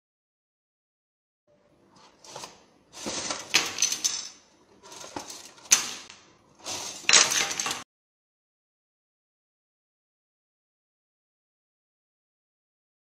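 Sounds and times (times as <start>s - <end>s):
plastic forks clattering: 2.2s - 7.8s.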